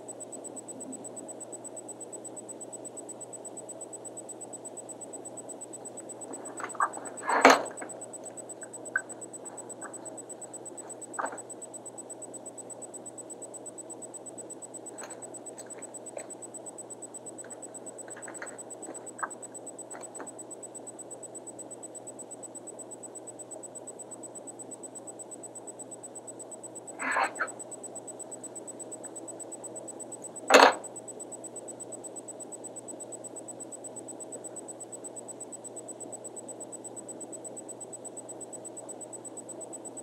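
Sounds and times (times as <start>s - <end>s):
high-pitched whine: 0.0s - 22.3s.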